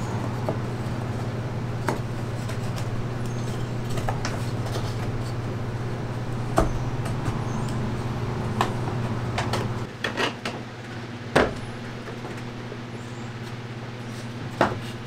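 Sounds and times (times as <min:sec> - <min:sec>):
steady low hum: 0:00.0 - 0:09.9.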